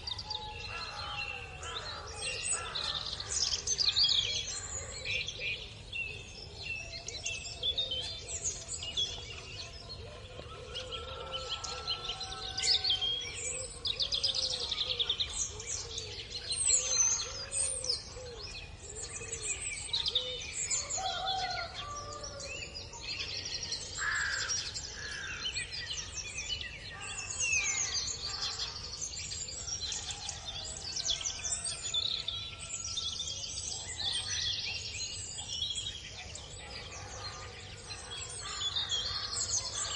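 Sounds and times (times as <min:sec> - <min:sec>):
songbirds chirping and trilling: 0:00.0 - 0:39.9.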